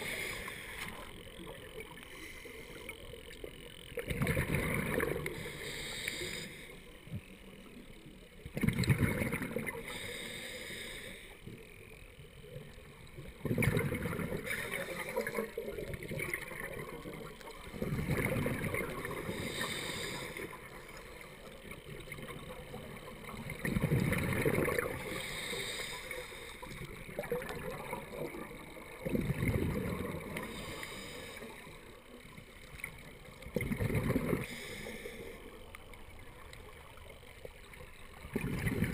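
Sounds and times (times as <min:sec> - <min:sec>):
regulator inhale hiss: 0:00.0 - 0:03.2, 0:05.2 - 0:07.3, 0:09.7 - 0:11.8, 0:14.3 - 0:15.7, 0:19.0 - 0:21.6, 0:24.8 - 0:27.0, 0:30.2 - 0:32.2, 0:34.3 - 0:35.9
exhaled bubbles rushing: 0:04.0 - 0:05.4, 0:08.5 - 0:09.8, 0:13.3 - 0:19.4, 0:21.9 - 0:25.2, 0:27.0 - 0:30.4, 0:33.4 - 0:34.5, 0:38.2 - 0:38.9.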